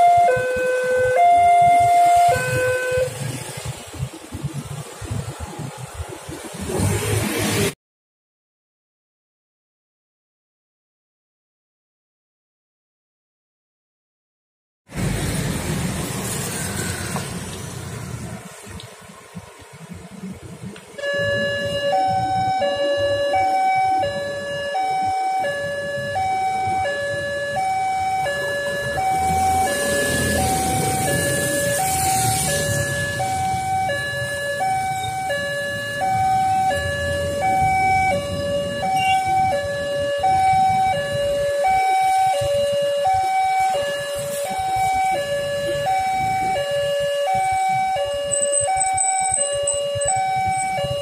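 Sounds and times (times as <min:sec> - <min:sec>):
level crossing alarm: 0:00.0 - 0:03.2, 0:21.0 - 0:51.0
road traffic noise: 0:00.0 - 0:07.8, 0:14.9 - 0:51.0.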